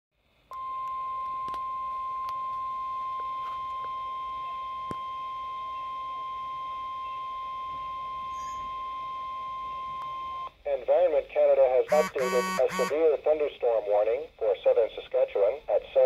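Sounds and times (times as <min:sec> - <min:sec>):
steady alarm tone: 0:11.9 - 0:13.0.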